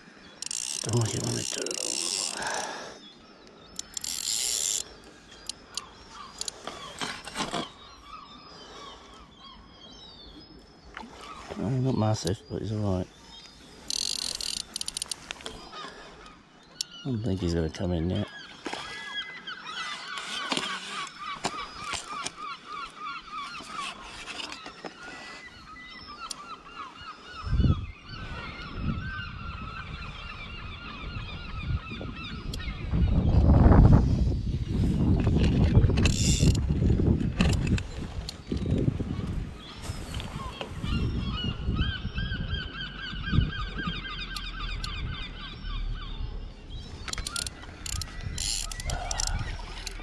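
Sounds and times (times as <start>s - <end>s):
birds calling: 0.0s - 50.0s
fishing reel drag buzzing: 0.4s - 2.9s, 3.8s - 6.6s, 13.8s - 15.2s, 36.0s - 36.6s, 47.1s - 50.0s
sharp clicks: 13.4s - 15.5s, 47.0s - 50.0s.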